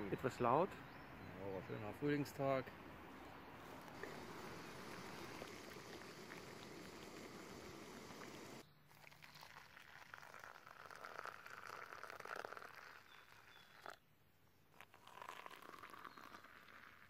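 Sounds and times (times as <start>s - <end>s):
faint water pouring: 3.8s - 14.0s, 14.7s - 17.0s.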